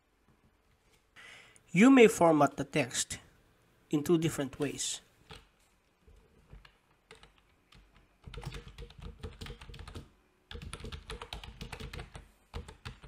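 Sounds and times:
keyboard typing: 5.2s - 13.0s.

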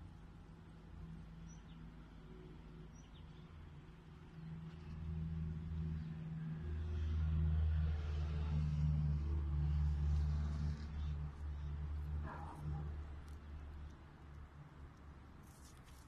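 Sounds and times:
vehicle engine hum: 4.1s - 16.0s.

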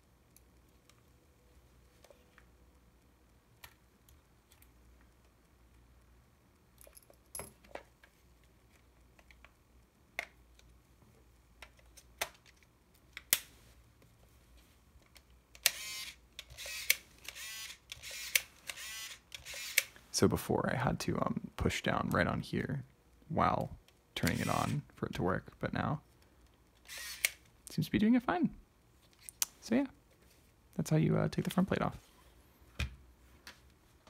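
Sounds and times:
camera lens motor whirring: 15.6s - 19.9s, 24.2s - 24.8s, 26.8s - 27.4s.

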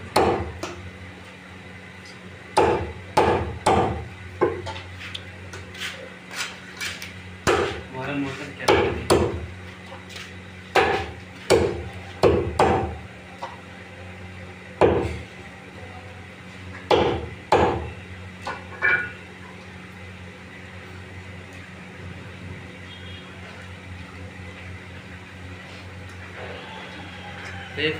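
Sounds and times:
low mechanical hum: 0.0s - 27.9s
meat cleaver chopping on wood block: 0.1s - 0.8s, 2.6s - 4.6s, 7.4s - 7.8s, 8.6s - 9.5s, 10.7s - 13.0s, 14.8s - 15.2s, 16.9s - 17.9s.

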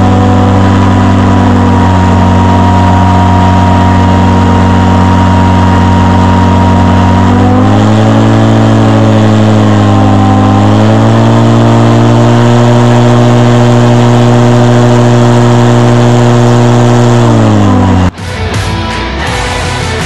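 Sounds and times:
heavy rock music: 0.0s - 12.2s, 17.3s - 20.0s
airboat engine and propeller roaring: 0.0s - 18.6s.

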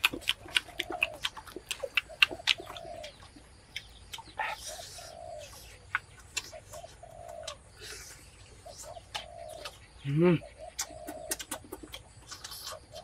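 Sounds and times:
dove cooing: 0.0s - 3.4s, 4.3s - 5.8s, 6.5s - 11.9s.

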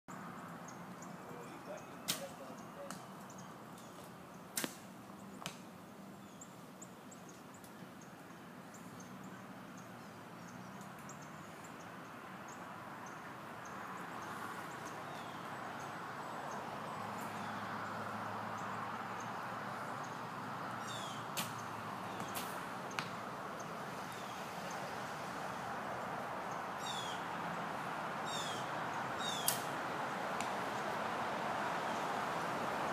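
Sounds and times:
outdoor background noise: 0.1s - 32.9s
arrows striking target: 2.0s - 2.4s, 4.5s - 5.6s, 21.3s - 21.6s, 22.2s - 23.2s, 29.5s - 29.7s.

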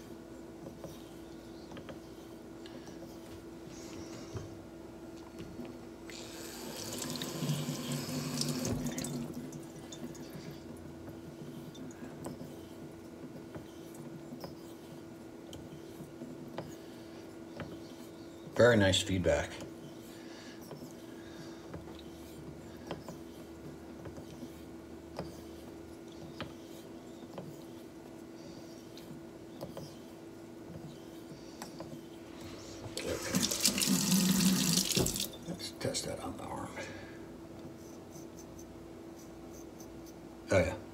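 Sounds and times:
steady low hum: 0.0s - 40.9s
razor honing strokes on stone: 9.9s - 32.2s
faucet water onto stone: 33.2s - 35.3s.

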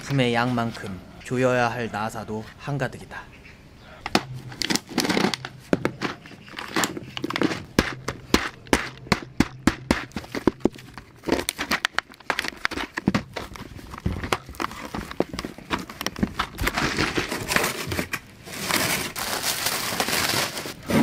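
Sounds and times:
plastic crinkling: 10.0s - 21.0s.

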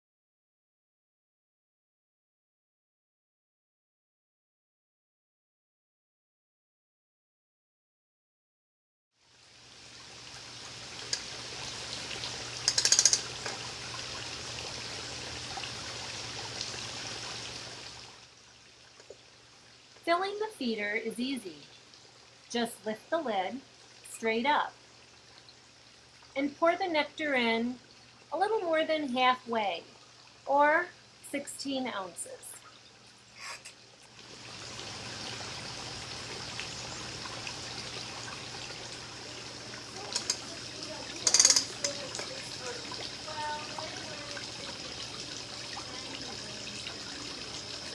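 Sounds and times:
trickling water-like hiss: 9.2s - 26.4s, 27.3s - 47.9s
sharp high clicks: 12.6s - 13.3s, 41.2s - 42.0s.

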